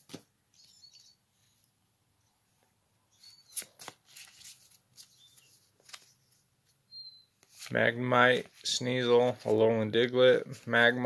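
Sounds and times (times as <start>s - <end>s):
cards rustling: 3.2s - 6.8s, 7.4s - 11.0s.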